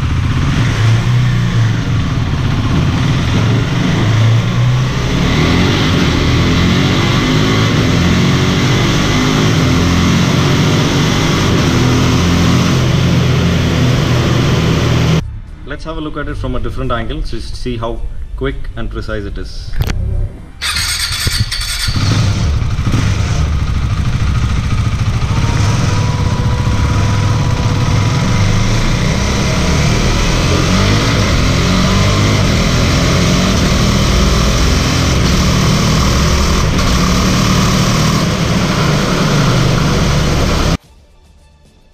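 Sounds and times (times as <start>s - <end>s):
motorcycle engine revving through gears: 0.0s - 15.2s, 20.6s - 40.8s.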